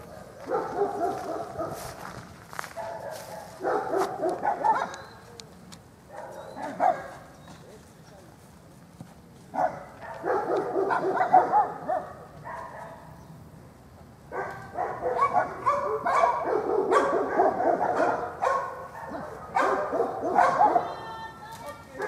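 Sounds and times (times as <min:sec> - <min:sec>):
dog barking and whining: 0:02.8 - 0:05.2, 0:09.6 - 0:13.0, 0:14.4 - 0:21.0.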